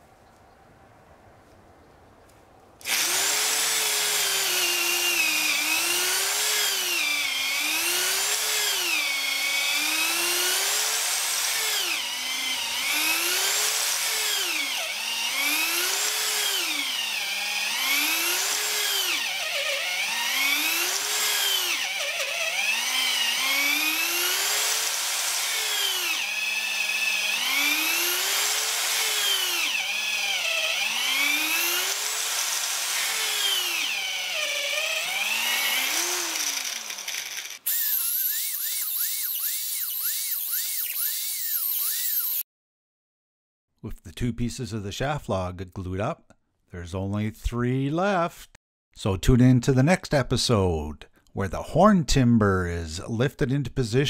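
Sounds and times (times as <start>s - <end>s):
electric drill boring into wood: 2.8s - 42.5s.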